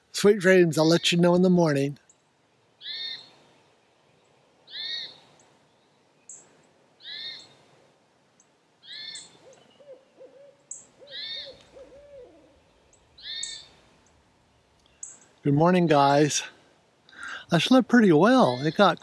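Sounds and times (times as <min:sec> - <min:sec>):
owl hooting: 0:02.8 - 0:03.3, 0:04.7 - 0:05.2, 0:07.0 - 0:07.6, 0:08.8 - 0:13.8.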